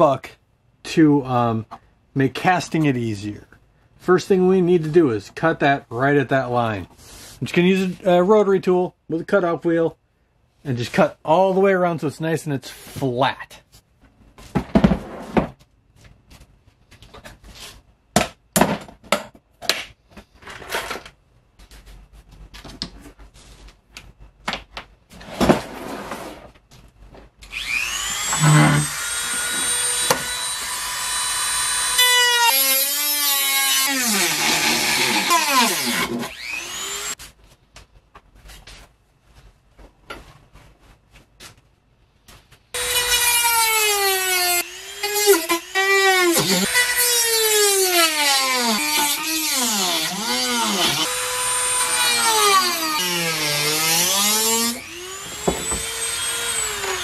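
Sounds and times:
rotary tool high whine: 27.5 - 32.6, 33.8 - 37.2, 42.8 - 47.0, 48.9 - 57.0.

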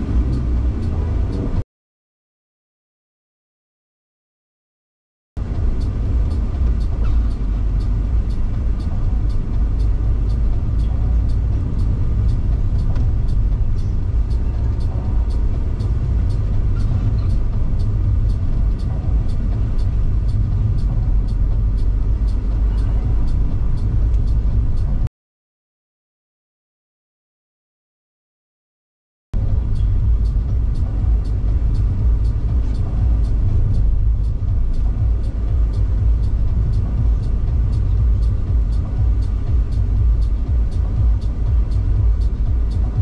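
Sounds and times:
car engine and tyres rumbling: 0.0 - 1.6, 5.4 - 25.1, 29.4 - 43.0
faint regular ticking: 5.4 - 25.1, 29.4 - 43.0.

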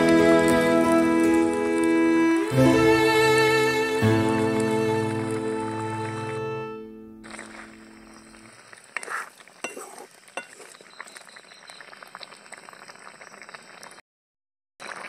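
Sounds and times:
curry bubbling in a pan: 7.2 - 14.0, 14.8 - 15.0
metal spatula clinking on pan: 9.6 - 10.8.

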